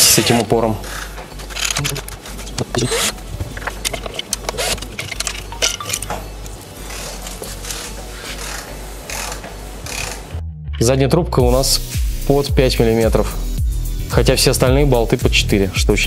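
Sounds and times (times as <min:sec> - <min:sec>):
screws and plastic parts clattering: 0:00.9 - 0:06.3.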